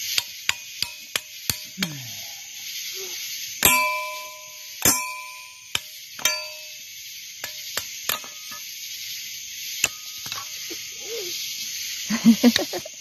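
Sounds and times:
metal strikes ringing: 0:00.0 - 0:02.1, 0:03.6 - 0:08.7.

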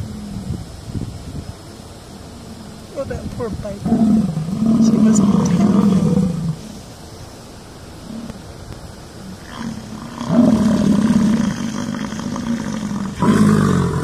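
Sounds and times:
bison bellowing: 0:03.8 - 0:06.8, 0:09.3 - 0:14.0.

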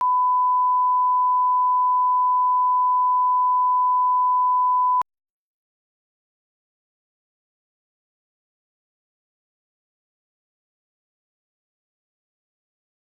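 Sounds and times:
steady sine test tone: 0:00.0 - 0:05.0.

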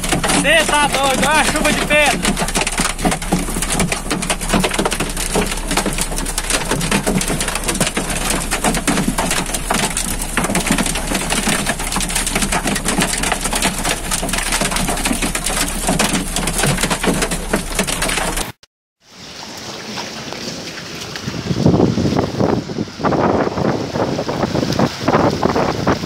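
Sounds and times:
hail drumming on vehicle roof: 0:00.0 - 0:18.6.

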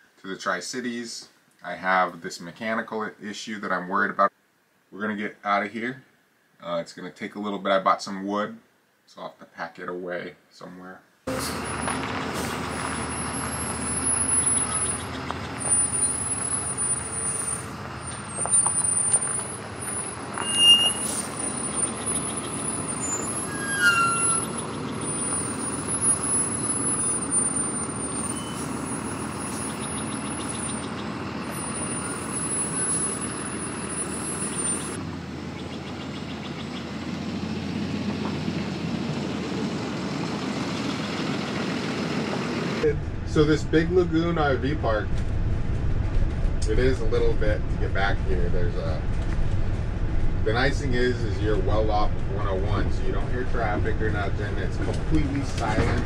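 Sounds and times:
diesel engine running: 0:11.3 - 0:56.0.

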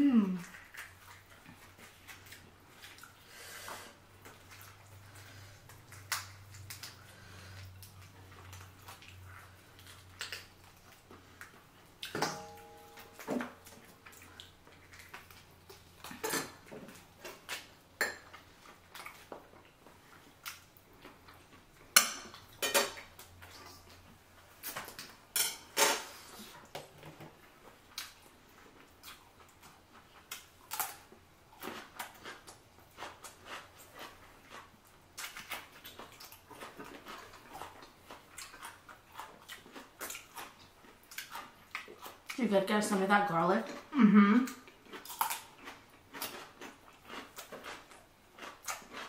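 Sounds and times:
utensils clinking on dishes: 0:12.1 - 0:13.6, 0:16.2 - 0:16.6, 0:22.0 - 0:23.0, 0:25.4 - 0:26.1.

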